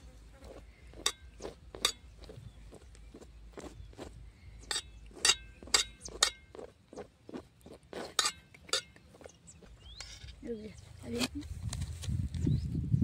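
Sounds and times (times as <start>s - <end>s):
knife clinking on plate: 4.7s - 6.4s.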